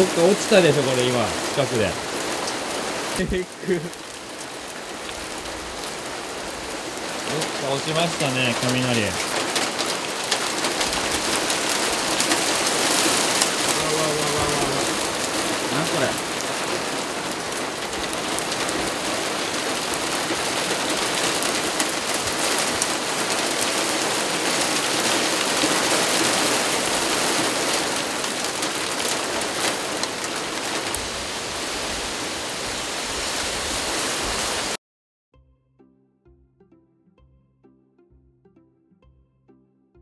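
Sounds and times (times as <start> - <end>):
hailstones ticking on vehicle: 0.0 - 31.1
heavy rain hissing: 0.0 - 34.8.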